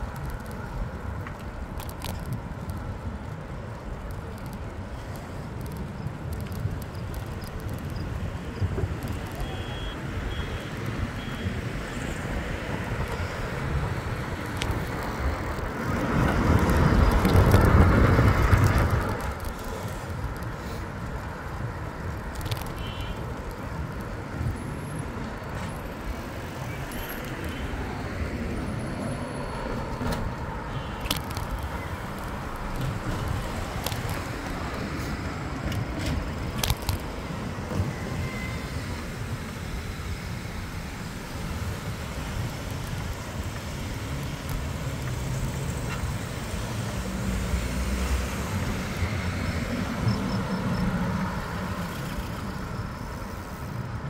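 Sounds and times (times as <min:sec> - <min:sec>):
road rumble: 0:00.0 - 0:54.0
wind noise: 0:00.0 - 0:54.0.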